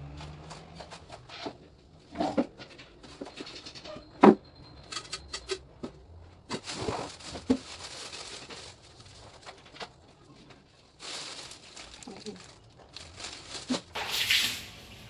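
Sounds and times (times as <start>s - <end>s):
cellophane crinkling: 6.5s - 15.0s
rustling: 6.5s - 15.0s.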